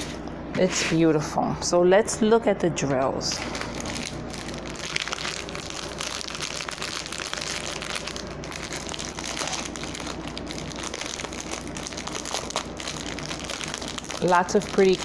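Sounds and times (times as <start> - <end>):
plastic bags crinkling: 3.3 - 15.0.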